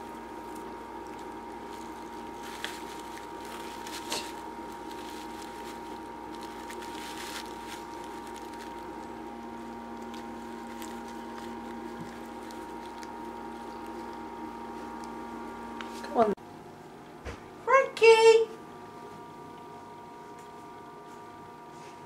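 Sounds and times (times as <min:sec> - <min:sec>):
cat pawing at hay: 0:00.4 - 0:09.2.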